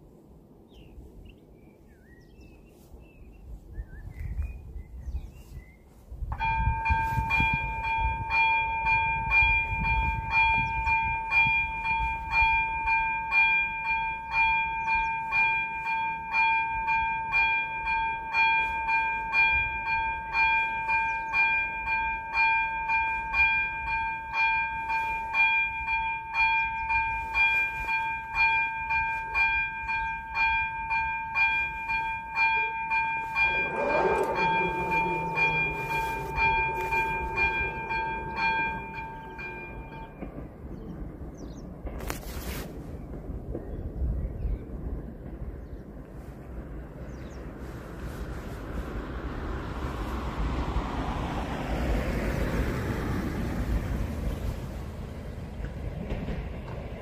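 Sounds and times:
level crossing warning bell: 0:06.3 - 0:41.2.

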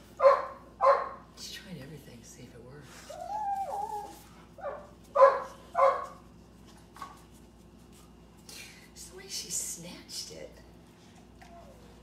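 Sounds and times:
dog barking: 0:00.2 - 0:01.2, 0:04.6 - 0:06.2
dog whining: 0:03.1 - 0:04.8, 0:11.4 - 0:12.0.

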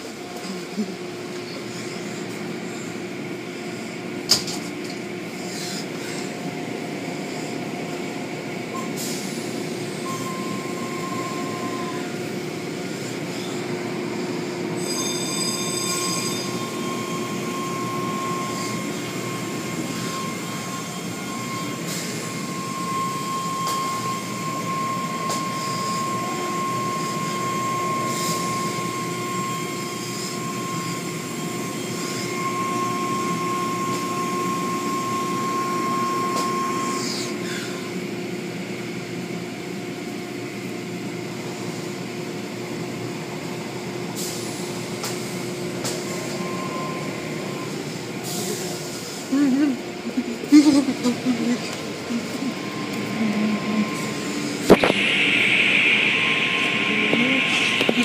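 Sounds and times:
machinery hum: 0:00.0 - 0:58.0
thin equipment whine: 0:00.0 - 0:58.0.

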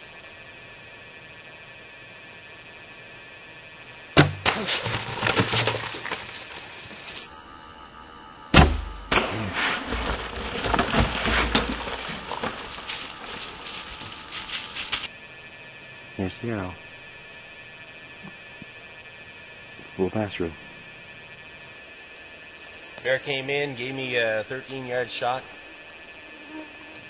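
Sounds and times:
heavy thumps: 0:04.2 - 0:07.2
animal crashing through brush: 0:04.2 - 0:07.3, 0:09.2 - 0:15.1.

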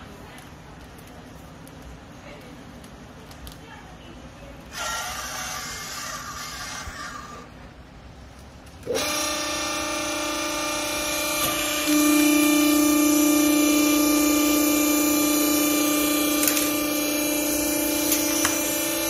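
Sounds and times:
hydraulic power unit humming: 0:04.6 - 0:19.0.

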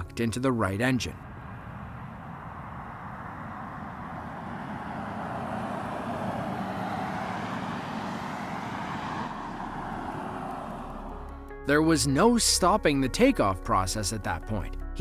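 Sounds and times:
distant jet engines roaring: 0:01.0 - 0:11.3.

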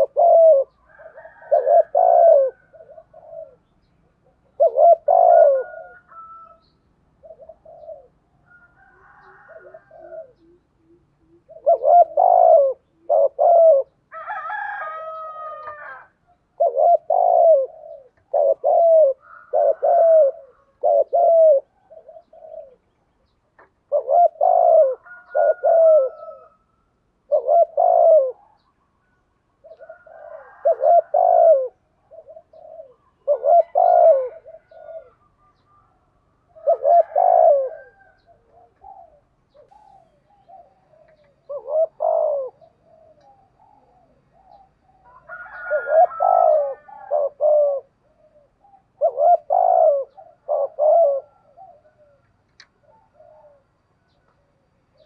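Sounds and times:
dove cooing: 0:00.0 - 0:55.0.

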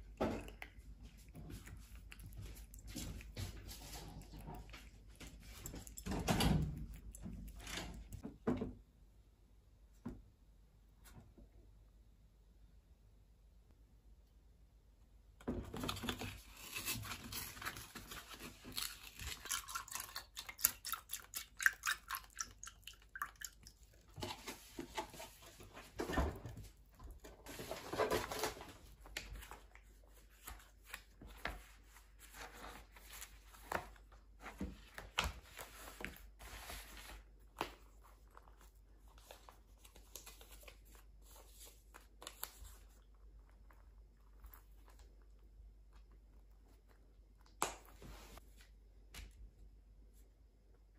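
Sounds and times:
paper rustling: 0:24.2 - 0:43.7.

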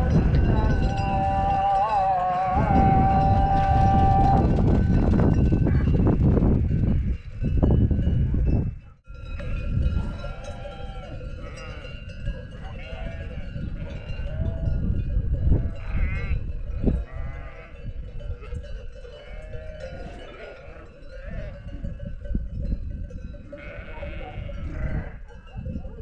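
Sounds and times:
sheep bleating: 0:00.0 - 0:04.3, 0:10.3 - 0:12.0, 0:12.6 - 0:14.7, 0:15.6 - 0:16.4, 0:17.0 - 0:17.8, 0:19.2 - 0:21.7, 0:23.5 - 0:25.2.

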